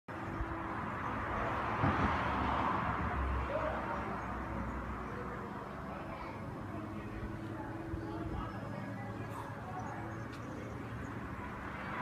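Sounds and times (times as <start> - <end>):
vehicle passing: 0.2 - 12.0.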